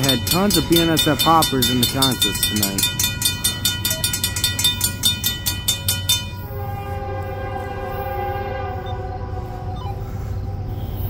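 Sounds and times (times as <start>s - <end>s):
sharp ringing strikes: 0.0s - 6.6s
train rumble: 0.0s - 11.0s
locomotive air horn: 6.2s - 11.0s.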